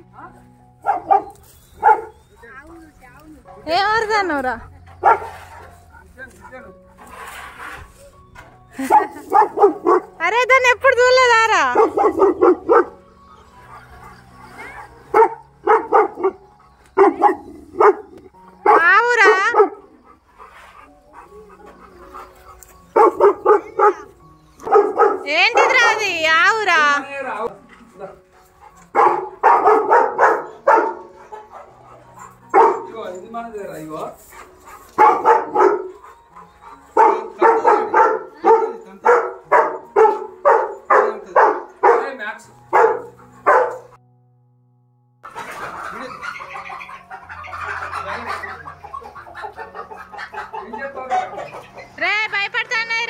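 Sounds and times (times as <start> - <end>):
dog barking: 0.8 - 2.2, 5.0 - 5.7, 8.8 - 10.2, 11.7 - 13.0, 13.7 - 20.0, 21.2 - 26.3, 28.8 - 33.0, 34.8 - 36.1, 36.9 - 44.0.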